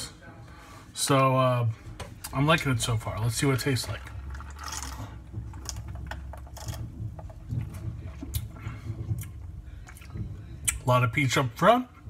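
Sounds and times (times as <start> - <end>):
mouth clicks and lip smacks: 9.2 - 10.8.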